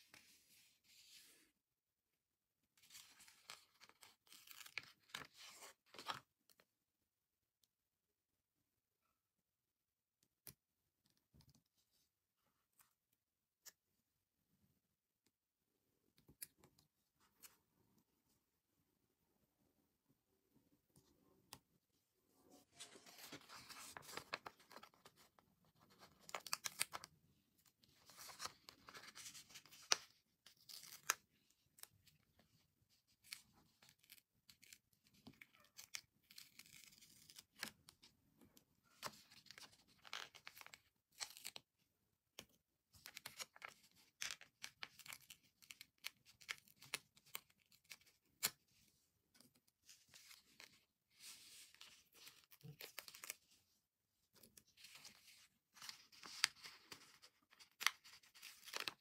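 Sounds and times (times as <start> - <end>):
paper crackling and rustling: 22.7 - 27.1, 54.8 - 59.0.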